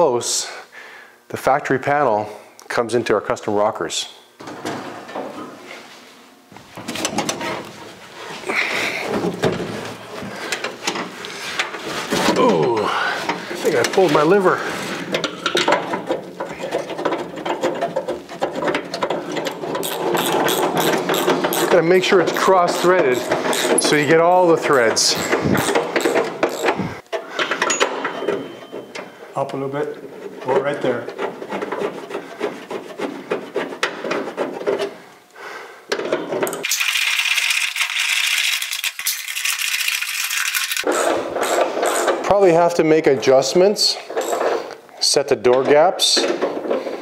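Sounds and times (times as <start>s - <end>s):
metal bolts clicking and rattling: 15.1s - 26.8s, 44.1s - 44.6s
hand tool mechanical clicks: 25.2s - 26.8s.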